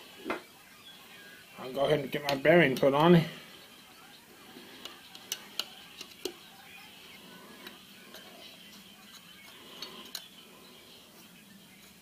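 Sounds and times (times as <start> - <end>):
faint steady background: 0.0 - 12.0
metallic clicks of engine parts: 7.6 - 10.3.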